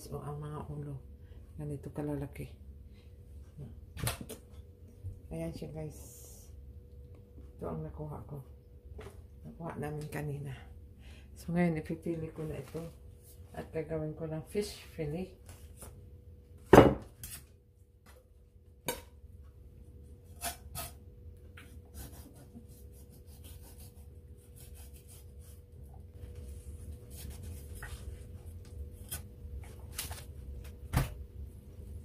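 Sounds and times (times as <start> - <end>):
knife scraping fish flesh: 20.3 - 21.0, 21.9 - 25.6.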